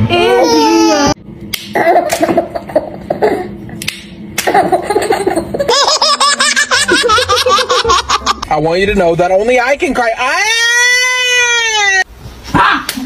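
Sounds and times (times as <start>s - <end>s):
baby laughing: 4.5s - 8.5s.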